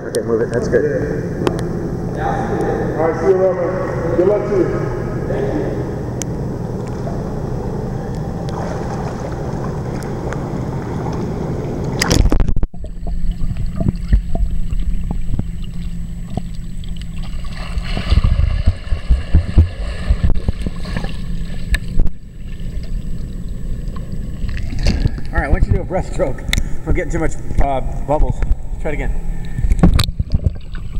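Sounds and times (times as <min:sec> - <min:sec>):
pool water lapping: 0:02.2 - 0:25.3, 0:29.2 - 0:30.9
underwater thumps and bubbling: 0:06.7 - 0:25.9, 0:29.5 - 0:30.9.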